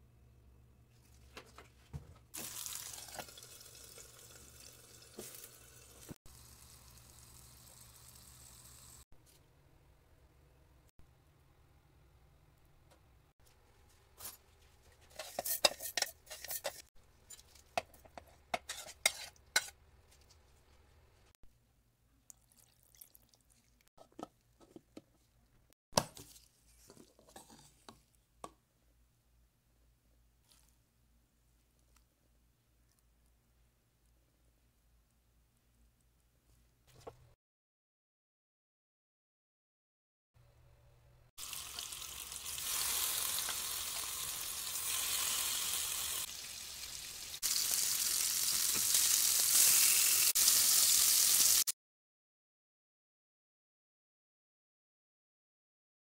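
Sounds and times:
fish sizzling in hot oil: 2.4 - 9.0, 41.4 - 51.7.

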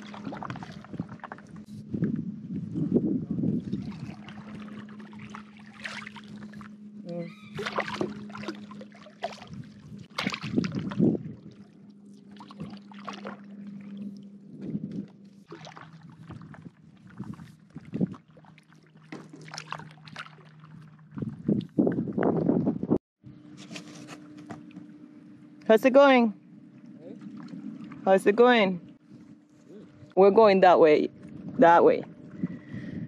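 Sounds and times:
paddle strokes splashing: 0.0 - 2.9, 3.5 - 22.1, 26.7 - 29.7.

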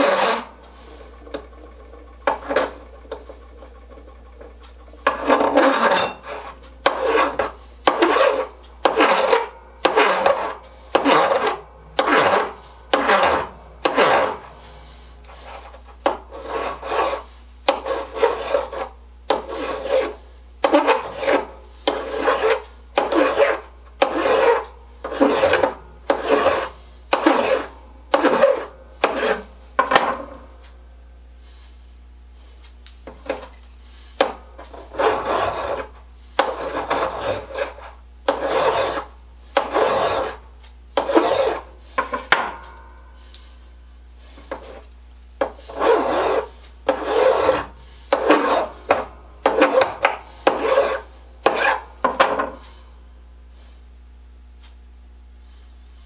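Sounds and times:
hand file rasping on metal: 0.0 - 1.6, 5.0 - 29.6, 34.1 - 40.4, 41.0 - 42.4, 44.2 - 52.0.

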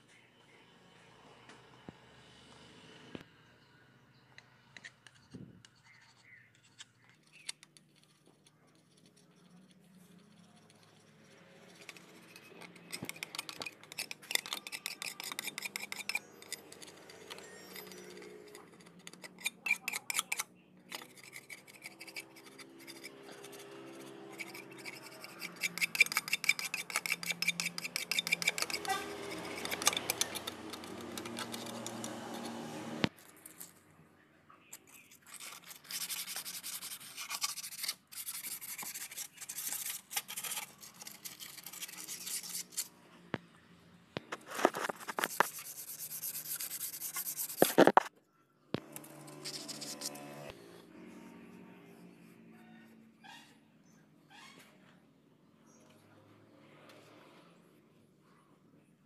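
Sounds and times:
scraping strokes on engine block: 10.1 - 33.1, 44.3 - 48.0.

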